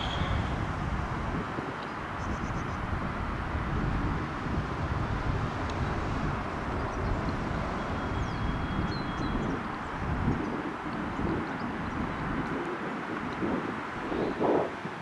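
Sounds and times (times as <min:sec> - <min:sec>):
faint high tone: 0:00.0 - 0:00.6
distant vehicle rumble: 0:00.0 - 0:13.0.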